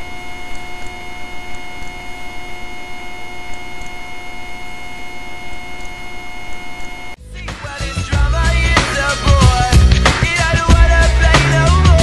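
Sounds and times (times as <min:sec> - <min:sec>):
high electronic whine tones: 0:00.0 - 0:07.2
faint ticks: 0:00.3 - 0:02.1, 0:03.4 - 0:04.1, 0:05.5 - 0:06.9.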